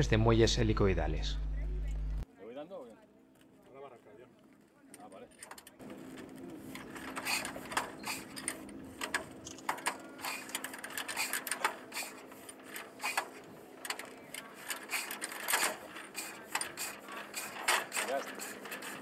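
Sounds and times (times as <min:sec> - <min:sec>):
steady low hum: 0:00.0 - 0:02.2
starting crank clicking and clacking: 0:05.0 - 0:19.0.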